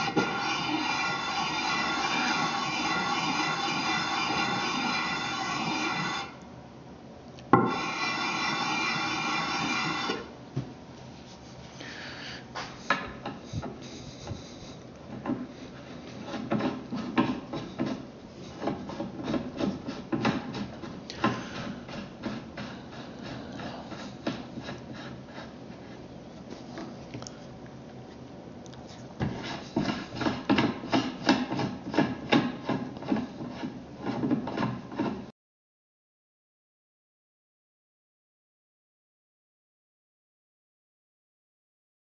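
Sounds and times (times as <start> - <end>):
metal rasping on abrasive paper: 0.0 - 6.3, 7.7 - 10.2.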